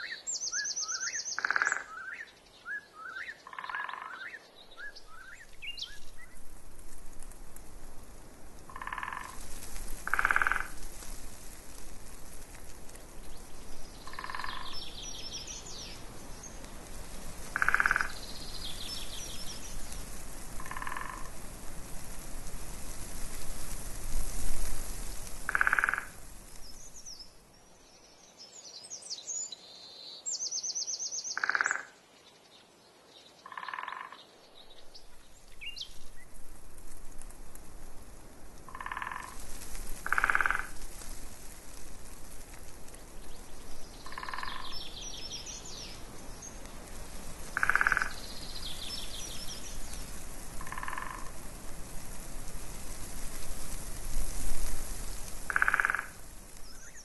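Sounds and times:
frogs croaking: 0:00.9 - 0:02.3, 0:03.1 - 0:04.4, 0:08.7 - 0:09.4, 0:10.0 - 0:10.8, 0:14.0 - 0:15.4, 0:17.5 - 0:19.7, 0:20.6 - 0:21.4, 0:25.5 - 0:26.2, 0:31.3 - 0:32.0, 0:33.4 - 0:34.2, 0:38.7 - 0:39.4, 0:40.0 - 0:40.8, 0:44.0 - 0:45.2, 0:47.5 - 0:49.7, 0:50.6 - 0:51.4, 0:55.4 - 0:57.0
steady rushing noise: 0:05.4 - 0:27.2
small birds trilling: 0:13.3 - 0:16.7, 0:17.5 - 0:21.3, 0:42.9 - 0:46.8.

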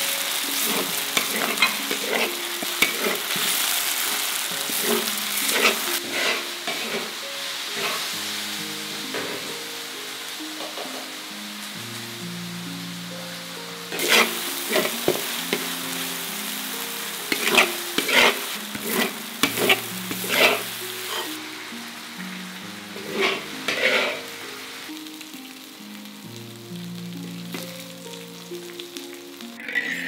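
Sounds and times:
food sizzling in a hot wok: 0:00.0 - 0:30.0
metal spatula scraping a wok: 0:00.6 - 0:08.1, 0:13.9 - 0:15.7, 0:17.2 - 0:21.4, 0:23.0 - 0:24.4.

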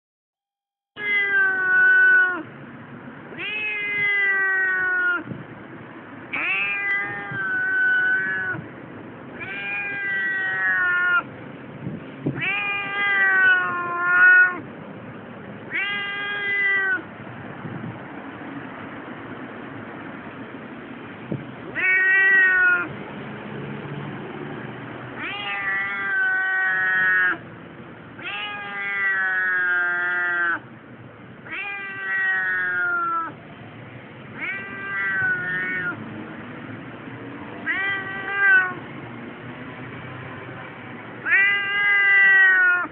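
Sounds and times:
cat yowling: 0:01.0 - 0:02.5, 0:03.3 - 0:05.3, 0:06.3 - 0:08.7, 0:09.3 - 0:11.3, 0:12.3 - 0:14.7, 0:15.7 - 0:17.1, 0:21.7 - 0:23.0, 0:25.1 - 0:27.5, 0:28.2 - 0:30.7, 0:31.4 - 0:33.4, 0:34.3 - 0:36.0, 0:37.6 - 0:38.8, 0:41.2 - 0:42.9.

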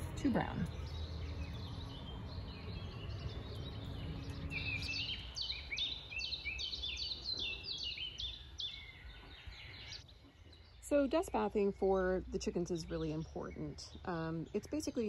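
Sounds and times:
low background rumble: 0:00.0 - 0:06.0
small bird chirping: 0:00.0 - 0:11.7.

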